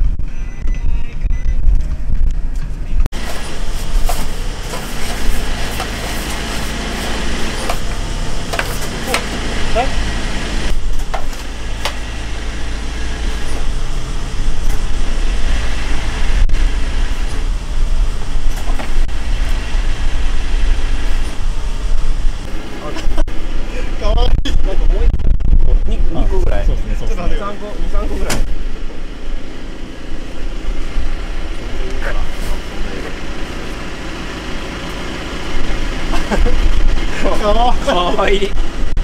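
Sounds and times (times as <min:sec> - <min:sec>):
truck engine idling: 0:02.0 - 0:24.2, 0:27.0 - 0:39.0.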